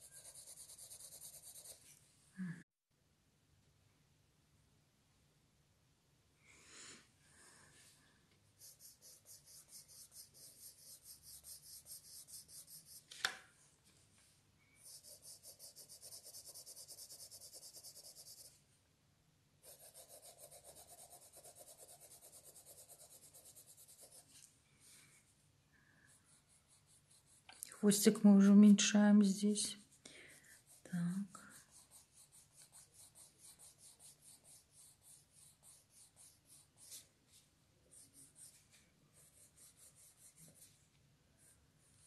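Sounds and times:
pencil shading on paper: 0:00.0 - 0:01.9, 0:08.6 - 0:13.1, 0:14.8 - 0:18.6, 0:19.6 - 0:24.3, 0:26.1 - 0:27.6, 0:29.6 - 0:40.8.

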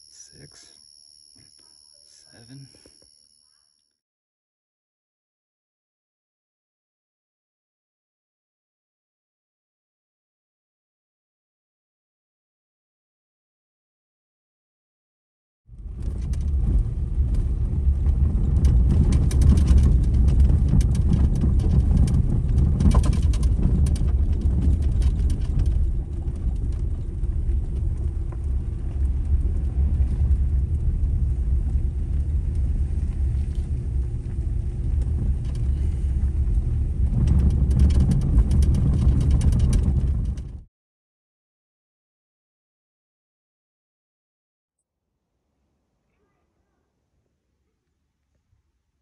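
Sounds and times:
vehicle rumbling on gravel: 0:15.7 - 0:40.7
gravel clicking: 0:15.8 - 0:40.6.

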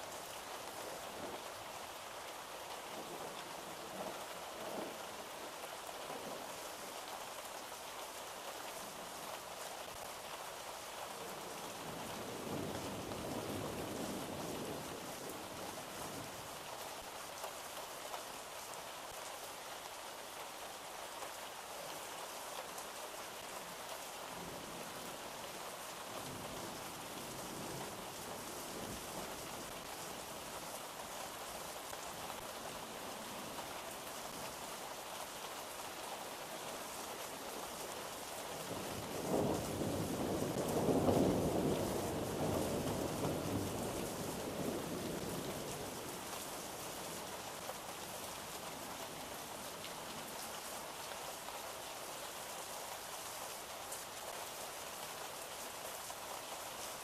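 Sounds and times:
steady rain: 0:00.0 - 0:57.0
low rumble of thunder: 0:03.0 - 0:05.5, 0:38.7 - 0:46.3.

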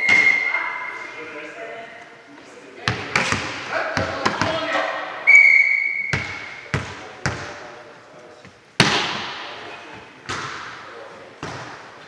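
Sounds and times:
volleyball smacks: 0:08.8 - 0:09.6, 0:10.2 - 0:10.8.

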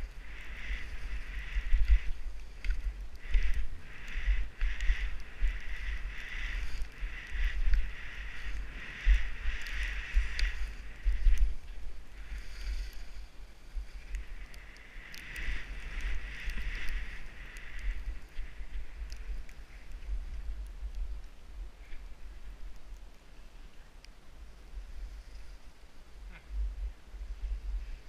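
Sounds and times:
skis hissing over snow: 0:00.0 - 0:20.2, 0:24.6 - 0:25.8
wind buffeting microphone: 0:00.0 - 0:22.6.

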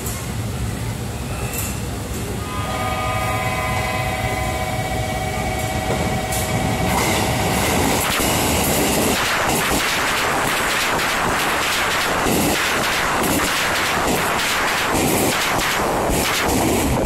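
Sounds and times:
train rushing past: 0:00.0 - 0:17.0
steady multi-pitch tone: 0:02.4 - 0:11.6.

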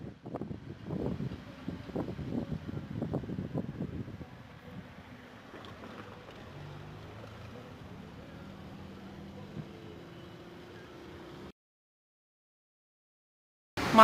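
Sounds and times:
car interior driving hum: 0:00.4 - 0:11.5.

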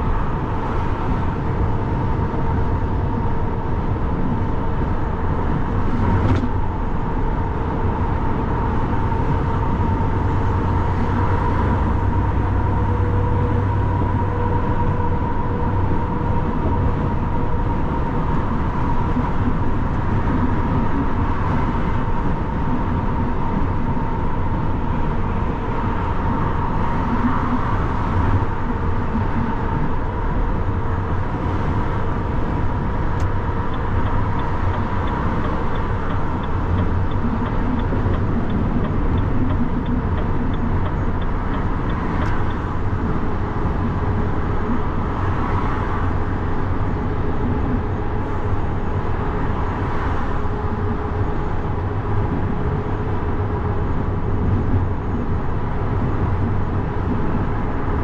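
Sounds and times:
lorry engine and road noise: 0:00.0 - 0:58.0
rapid even ticking: 0:33.3 - 0:43.2.

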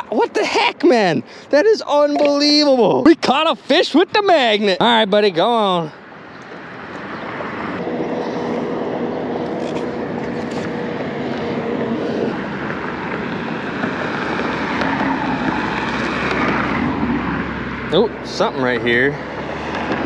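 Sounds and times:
engine passing by: 0:06.6 - 0:20.0.

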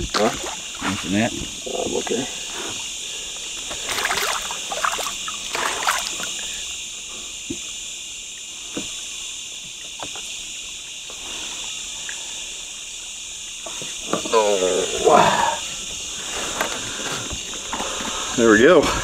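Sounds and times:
water splashes and knocks: 0:00.0 - 0:02.2, 0:03.6 - 0:06.4, 0:09.7 - 0:10.3
night insects chorus: 0:00.0 - 0:19.0.

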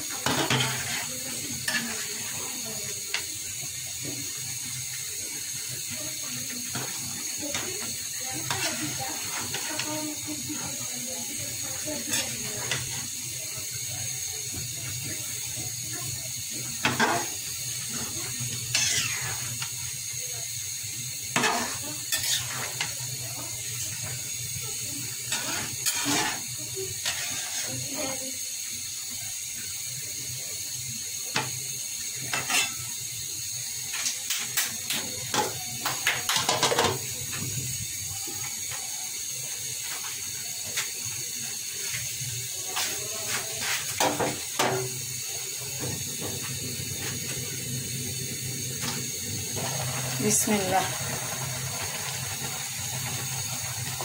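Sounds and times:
food hissing in a pan: 0:00.0 - 0:54.0
metal spatula scraping pan: 0:00.2 - 0:02.4, 0:08.4 - 0:10.7, 0:11.8 - 0:13.0, 0:16.8 - 0:17.4, 0:18.7 - 0:19.6, 0:21.3 - 0:23.0, 0:25.3 - 0:27.8, 0:32.3 - 0:32.8.

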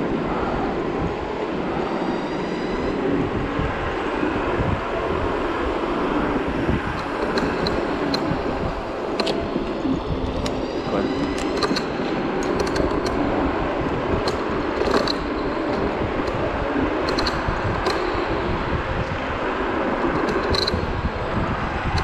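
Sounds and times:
wind buffeting microphone: 0:00.0 - 0:22.0
sharp clicks and rattles: 0:06.9 - 0:18.4, 0:20.0 - 0:21.1.

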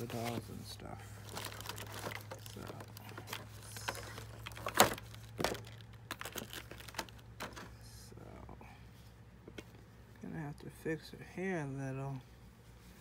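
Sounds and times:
plastic packaging crinkling: 0:01.2 - 0:07.6.

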